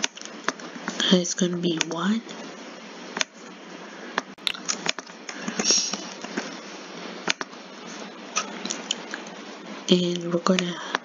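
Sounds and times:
microphone hiss: 0.0 - 11.0
computer keyboard and mouse clicks: 4.2 - 5.7, 7.2 - 7.5.

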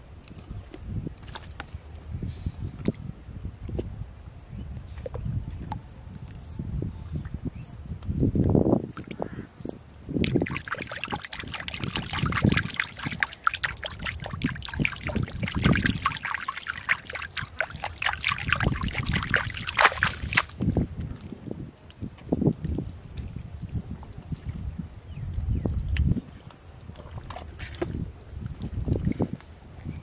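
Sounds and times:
water trickling and splashing: 9.9 - 24.8
hands squelching wet mud: 10.1 - 20.8.

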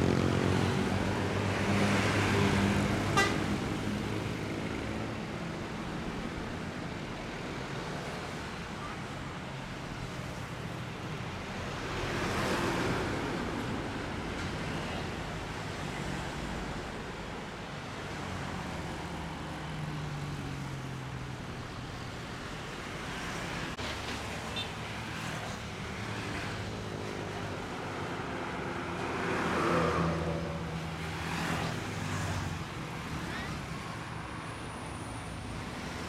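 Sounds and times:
motorcycles passing: 0.0 - 5.2
bus and truck diesel engines: 0.0 - 36.0.

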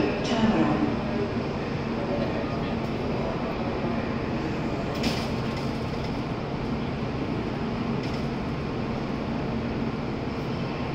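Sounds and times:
train humming: 0.0 - 10.9.

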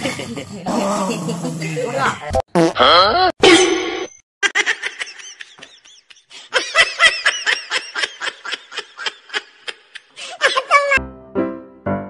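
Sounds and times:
person laughing: 4.4 - 11.0.

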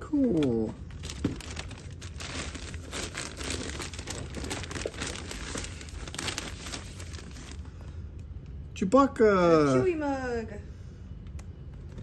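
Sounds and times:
plastic bag crinkling: 0.2 - 7.7.

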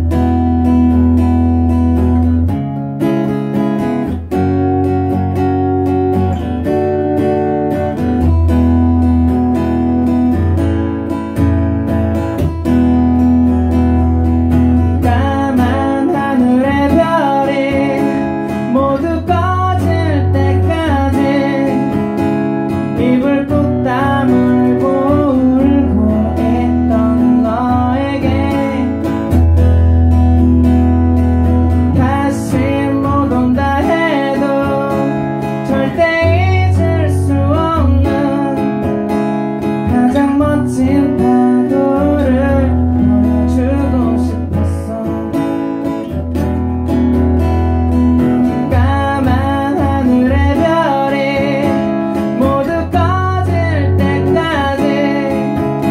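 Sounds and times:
acoustic guitar: 0.0 - 55.9
person singing: 14.8 - 29.5, 31.8 - 39.0, 39.8 - 45.7, 48.3 - 55.9.

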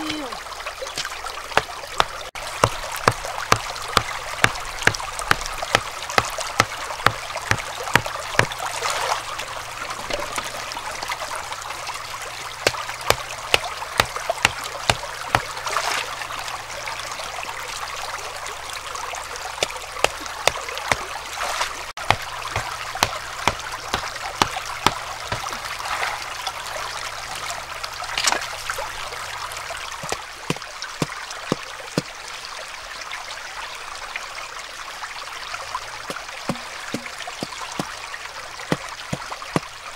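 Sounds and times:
shallow stream rushing: 0.0 - 39.9
rock hammering wooden stakes: 1.0 - 8.6, 12.6 - 15.6, 19.6 - 21.1, 22.0 - 25.7, 30.0 - 32.1, 36.1 - 38.0, 38.6 - 39.7.

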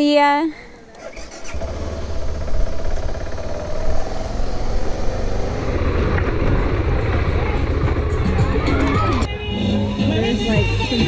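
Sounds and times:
motorcycle engine running: 0.9 - 8.6.

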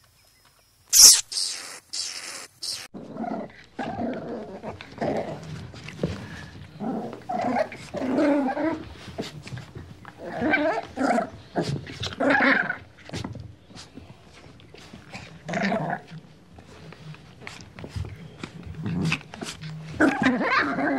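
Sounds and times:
dog making short vocal noises: 1.0 - 2.9.

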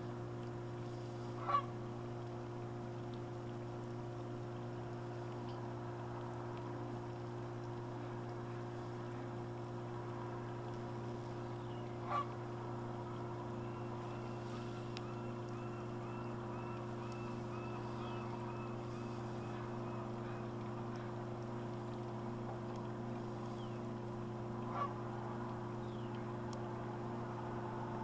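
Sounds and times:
low hum: 0.0 - 28.0
geese honking: 24.7 - 25.0.

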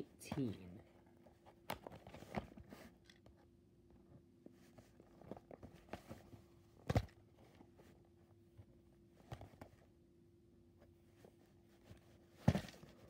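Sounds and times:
cardboard box rustling and tapping: 12.4 - 13.0.

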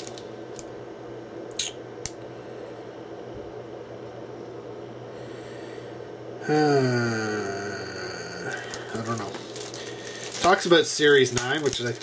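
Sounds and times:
packaging handling: 0.0 - 0.3, 8.4 - 12.0
low room hum: 0.0 - 12.0
man humming: 6.4 - 9.3.

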